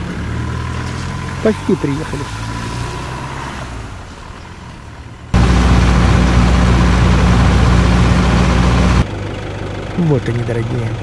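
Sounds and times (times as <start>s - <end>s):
vehicle engine hum: 4.0s - 9.8s
loud engine drone with hiss: 5.4s - 9.0s.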